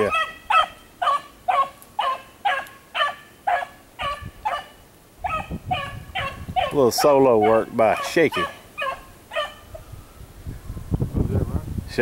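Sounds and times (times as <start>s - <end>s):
dog baying and barking: 0.0s - 9.8s.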